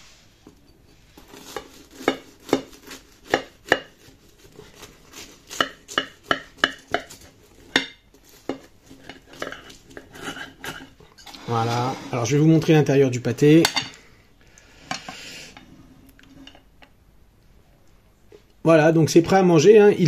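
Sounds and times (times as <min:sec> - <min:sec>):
knife crunching through pastry crust: 0:00.9 - 0:11.7.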